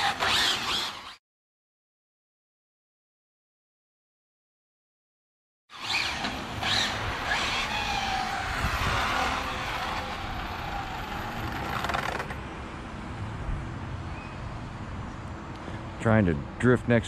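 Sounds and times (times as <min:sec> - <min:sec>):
electric motors whining: 0:00.0 - 0:01.2, 0:05.7 - 0:12.4
tyre noise on asphalt: 0:05.7 - 0:12.8.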